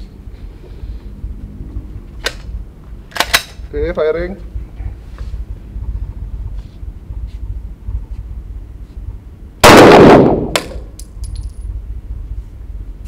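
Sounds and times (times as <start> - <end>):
pistol shot echoing: 9.6 - 10.9
metallic clinks: 11.0 - 11.7.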